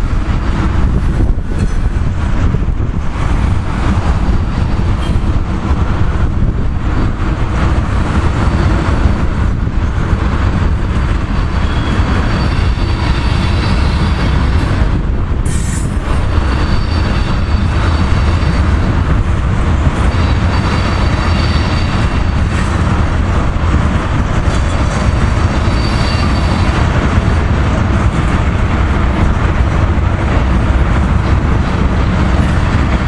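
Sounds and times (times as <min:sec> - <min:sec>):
train wheels rumbling on rail: 0:00.0 - 0:33.0
faint high wheel squeal: 0:11.4 - 0:14.4, 0:15.5 - 0:18.7, 0:20.1 - 0:22.6, 0:25.5 - 0:26.8.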